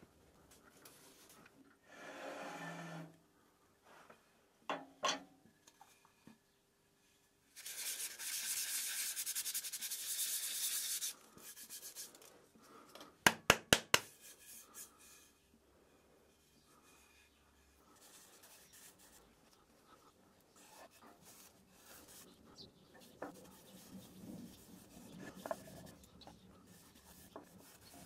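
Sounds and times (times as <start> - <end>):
sharp taps on wood: 13.3 - 14.1
hands rubbing wooden bowl: 17.9 - 28.0.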